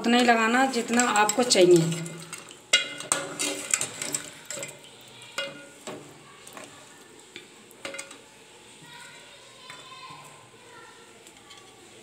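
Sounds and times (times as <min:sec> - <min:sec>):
metal ladle scraping pot: 0:00.2 - 0:06.0.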